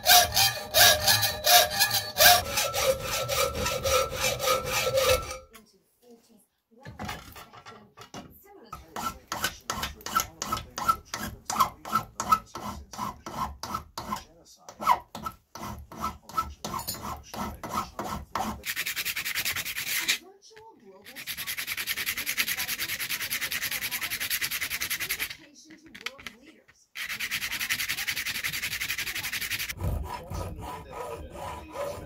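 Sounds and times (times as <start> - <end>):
hand file rasping: 0.0 - 5.5, 8.8 - 20.2, 21.1 - 25.4, 27.0 - 32.0
rubbing on sandpaper: 17.8 - 20.2, 21.1 - 25.4, 27.0 - 32.0.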